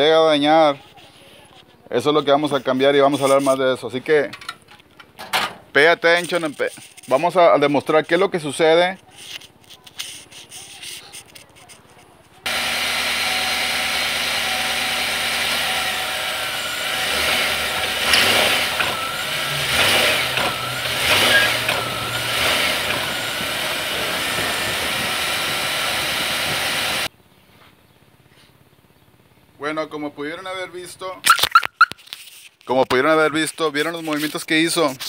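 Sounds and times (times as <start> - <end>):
pickup truck engine idling: 12.5 - 27.1
wavering squeal: 15.8 - 26.3.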